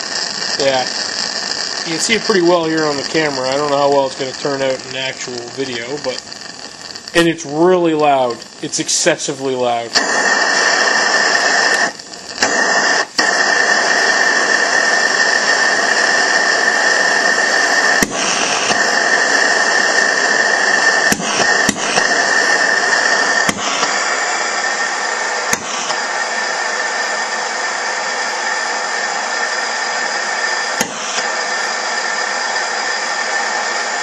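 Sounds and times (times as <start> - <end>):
gas lantern hissing: 0.0 - 34.0
high whistle: 10.0 - 34.0.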